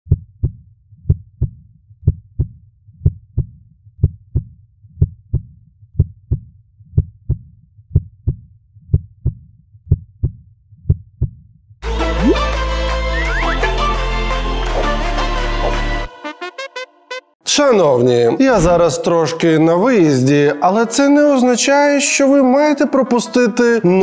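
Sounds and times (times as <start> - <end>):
heartbeat thumps: 0.1 - 11.5
music: 11.8 - 17.4.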